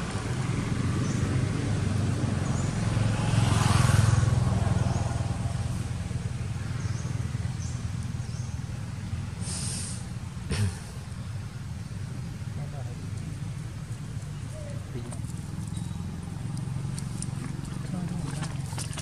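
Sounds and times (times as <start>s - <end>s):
vehicle engine passing: 0.0s - 19.0s
short hiss: 9.4s - 10.8s.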